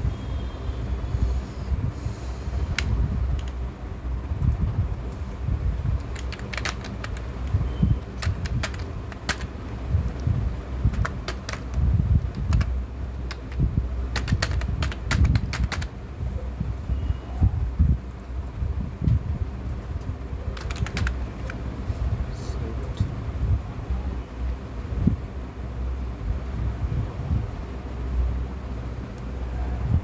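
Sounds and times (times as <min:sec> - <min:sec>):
low background rumble: 0:00.0 - 0:30.0
computer keyboard typing: 0:02.7 - 0:03.7, 0:05.9 - 0:16.0, 0:19.6 - 0:21.7.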